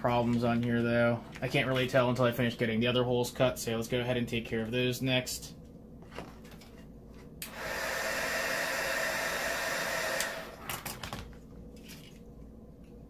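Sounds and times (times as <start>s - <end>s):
heat gun blowing: 7.4s - 10.6s.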